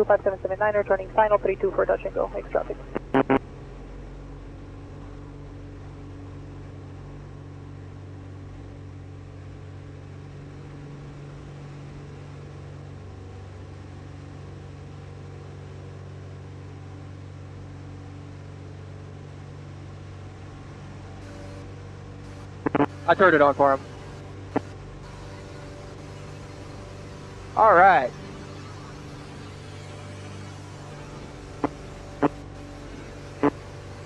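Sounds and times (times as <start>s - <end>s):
aircraft engine droning: 0.0s - 15.3s, 20.0s - 34.0s.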